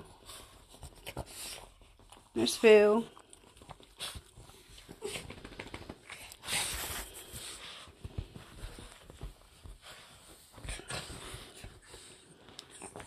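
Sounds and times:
dog breathing: 3.2s - 13.0s
bedding rustling: 4.0s - 13.0s.

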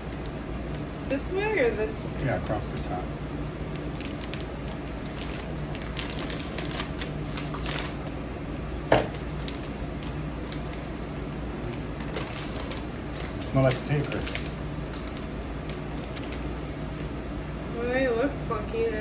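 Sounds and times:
crisp packet crinkling: 3.7s - 8.1s, 9.1s - 16.7s.

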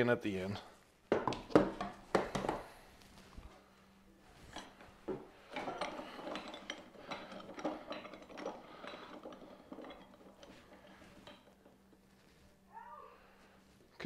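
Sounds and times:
kitchen utensils and dishes clinking: 5.4s - 11.8s.

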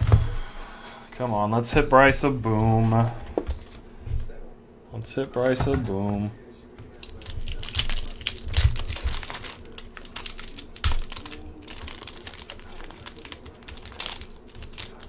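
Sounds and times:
wrapper crinkling: 6.9s - 15.0s
foil card pack tearing: 7.0s - 15.0s.

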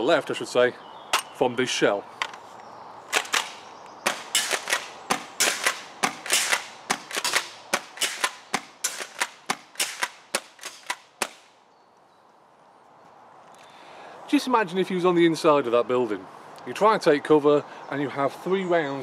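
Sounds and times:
airsoft shotgun shots: 3.1s - 11.5s
shotgun pump action: 3.1s - 11.5s.

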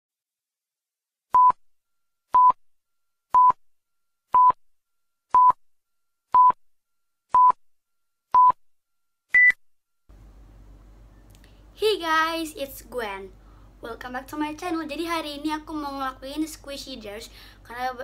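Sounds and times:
short electronic beeps: 4.4s - 4.6s, 6.4s - 6.6s, 8.4s - 8.6s, 9.3s - 9.6s.

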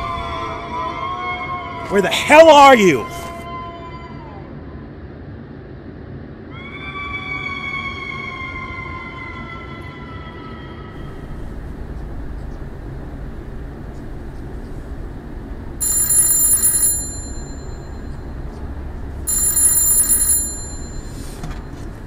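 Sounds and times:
low rumble: 11.0s - 15.8s, 17.1s - 19.3s
telephone ringing: 15.1s - 22.0s.

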